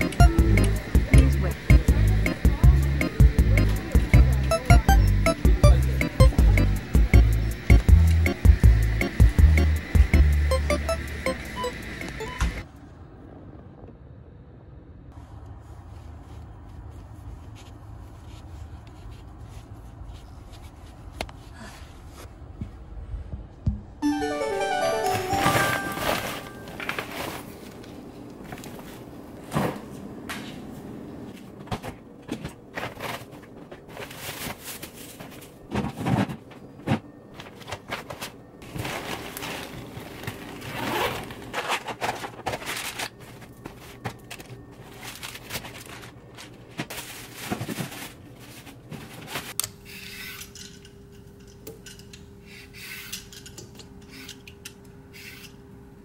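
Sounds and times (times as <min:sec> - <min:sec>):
plastic bag rustling: 0:37.5 - 0:49.6.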